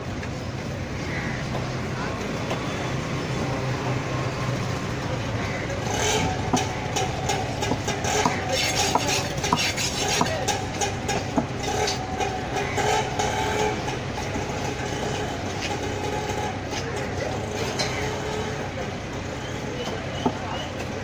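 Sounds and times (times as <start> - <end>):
steady background rumble: 0.0 - 21.0
knife cutting fish on wood: 8.2 - 10.5.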